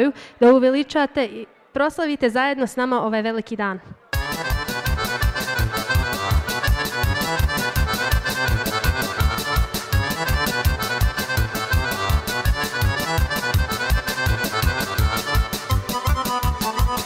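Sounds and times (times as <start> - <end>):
fast folk dance music: 4.2 - 17.0.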